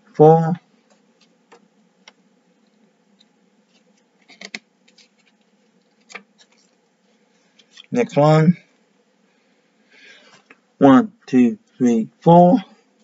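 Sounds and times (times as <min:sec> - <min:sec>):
paper pages rustling: 0:02.6 - 0:08.0.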